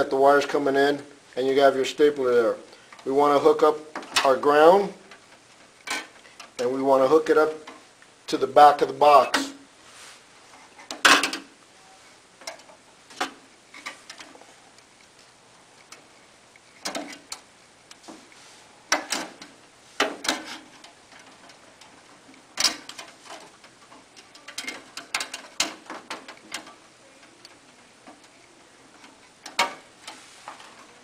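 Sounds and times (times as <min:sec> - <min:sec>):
metal clicks and scrapes: 0:05.1 - 0:06.8, 0:12.4 - 0:15.1, 0:15.8 - 0:31.0.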